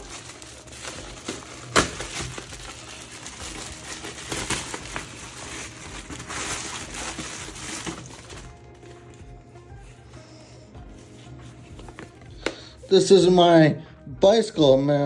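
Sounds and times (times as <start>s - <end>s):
plastic packaging crinkling: 0.0s - 9.6s.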